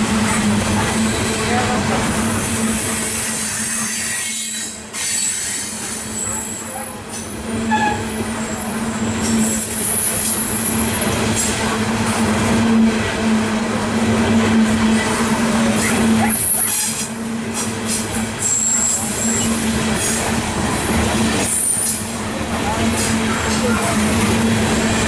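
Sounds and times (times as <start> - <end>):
freight train rumbling past: 0.0 - 25.0
high-pitched wheel squeals: 3.0 - 6.8, 18.4 - 20.2.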